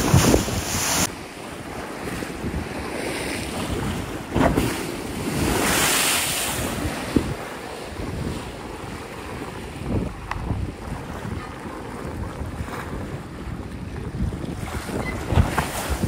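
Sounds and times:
sharp water splash: 0:00.0 - 0:01.1, 0:03.2 - 0:07.4
lake waves sloshing and breaking: 0:00.0 - 0:16.0
rushing wash of water: 0:00.0 - 0:16.0
wind buffeting microphone: 0:00.0 - 0:16.0.

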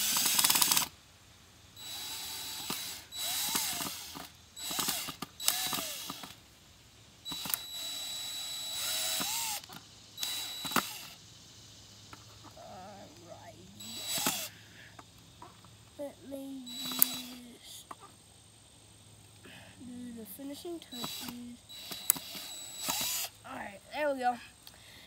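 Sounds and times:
cordless drill driving screws: 0:00.0 - 0:00.9, 0:01.8 - 0:06.4, 0:07.3 - 0:11.2, 0:13.8 - 0:14.5, 0:16.7 - 0:17.5, 0:21.0 - 0:23.4.

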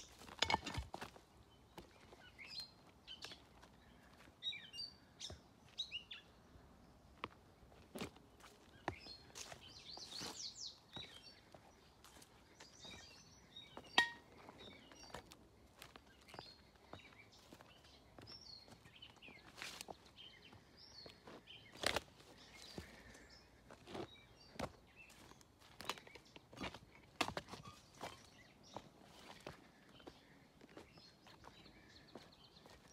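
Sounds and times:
footsteps on gravel and wood: 0:00.0 - 0:04.4, 0:07.2 - 0:32.9
birds chirping and singing: 0:08.6 - 0:32.9.

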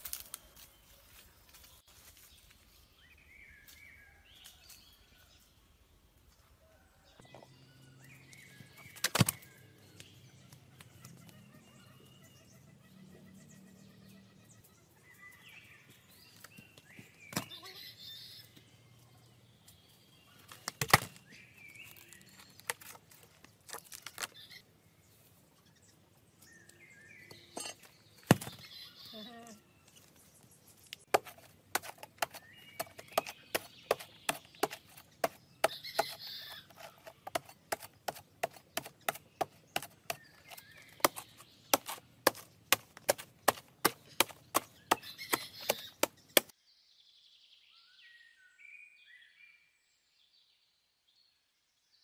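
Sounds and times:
machete chopping into a tree trunk: 0:08.9 - 0:09.5, 0:20.6 - 0:21.3, 0:27.5 - 0:28.7, 0:31.1 - 0:36.2, 0:37.2 - 0:46.5.

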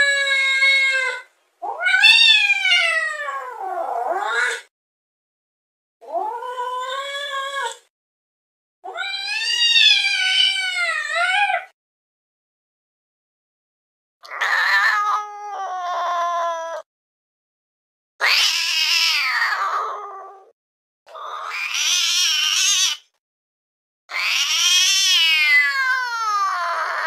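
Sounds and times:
angry cat yowling: 0:00.0 - 0:04.7, 0:08.9 - 0:11.7, 0:14.3 - 0:16.9, 0:18.2 - 0:20.5, 0:21.2 - 0:23.1, 0:24.1 - 0:27.0.

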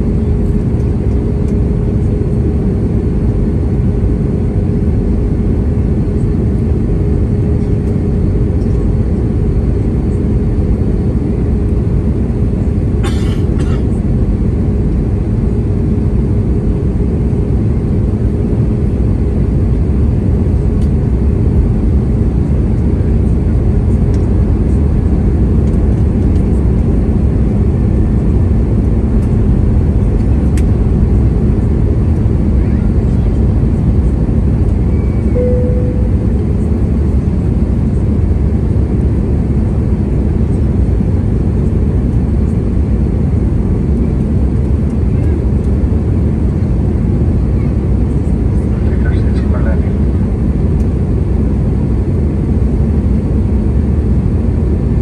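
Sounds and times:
aircraft engines and airflow roar: 0:00.0 - 0:55.0
thin steady hum: 0:27.6 - 0:38.4.

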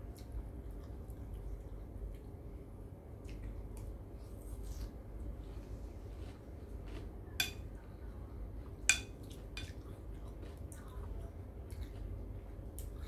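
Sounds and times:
spoon clinking against bowl: 0:07.4 - 0:07.6, 0:08.9 - 0:09.7.

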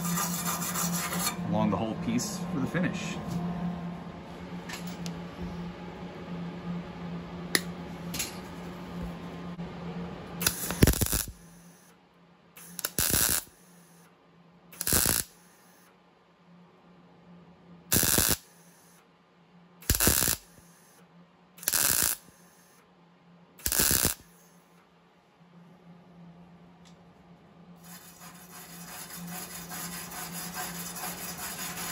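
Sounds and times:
steady hum: 0:00.0 - 0:31.9
welder arc crackling: 0:10.4 - 0:11.9, 0:12.6 - 0:14.0, 0:14.8 - 0:15.8, 0:17.9 - 0:18.9, 0:19.8 - 0:21.0, 0:21.6 - 0:22.8, 0:23.6 - 0:24.5.

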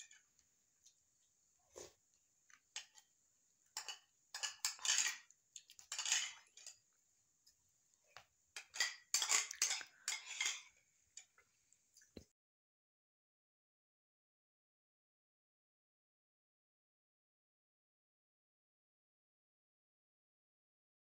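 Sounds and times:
metal spoon scraping ceramic bowl: 0:03.8 - 0:05.3, 0:05.9 - 0:06.7, 0:08.6 - 0:10.7.

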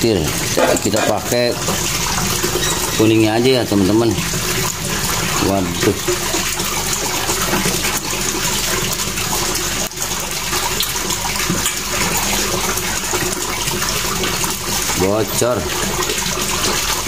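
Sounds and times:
running water rushing: 0:00.0 - 0:17.0.

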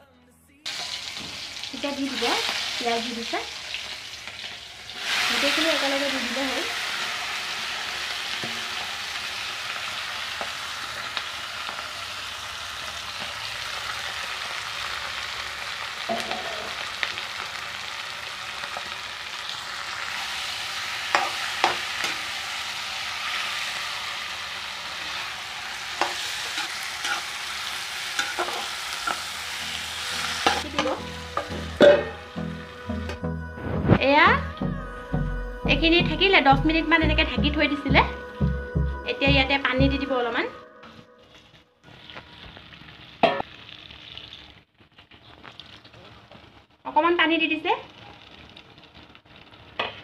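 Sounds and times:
onions sizzling in hot oil: 0:00.7 - 0:33.1, 0:41.3 - 0:50.0
spatula scraping and clinking pan: 0:16.1 - 0:16.8, 0:26.0 - 0:29.3.

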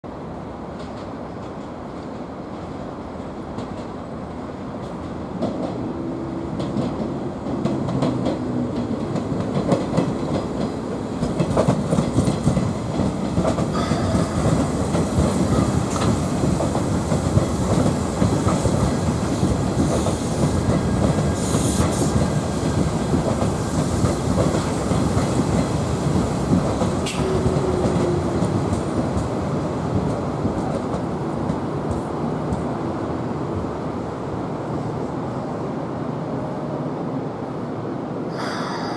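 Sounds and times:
electric train slowing: 0:05.6 - 0:29.7, 0:38.3 - 0:38.9
train wheels clattering over rail joints: 0:06.6 - 0:32.7.

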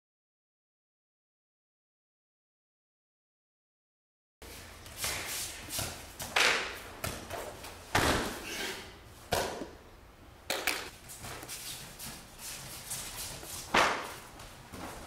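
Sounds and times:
bodies thudding on judo mats: 0:07.0 - 0:08.5.

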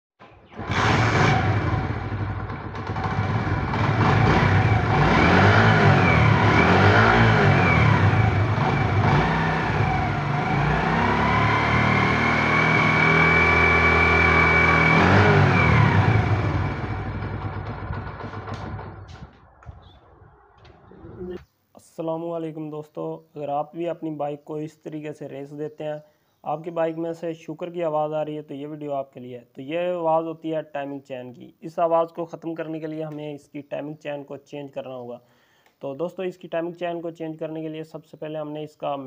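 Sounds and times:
motorcycle engine revving: 0:00.4 - 0:21.3.

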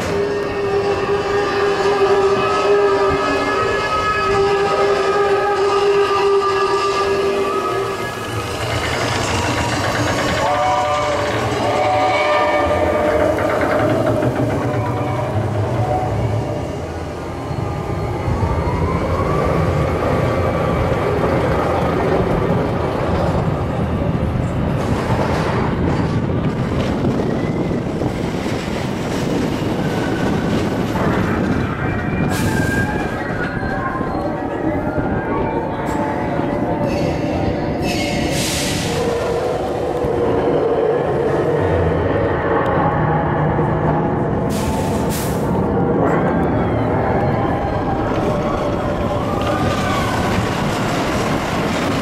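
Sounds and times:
roller coaster wheels rumbling: 0:00.0 - 0:52.0
high wheel squeal: 0:31.0 - 0:39.5.

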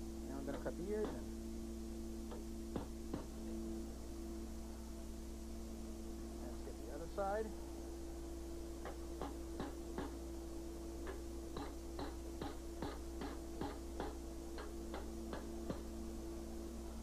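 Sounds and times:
steady hum: 0:00.0 - 0:17.0
hammer striking chisel on metal: 0:00.5 - 0:01.2, 0:08.8 - 0:10.2, 0:11.0 - 0:15.9.

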